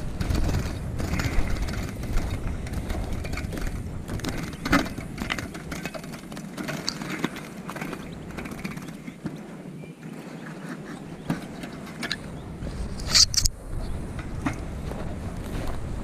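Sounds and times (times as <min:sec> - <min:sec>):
low rumble: 0:00.0 - 0:06.2
wire-mesh cage rattling and clicking: 0:00.0 - 0:09.4, 0:10.6 - 0:12.3.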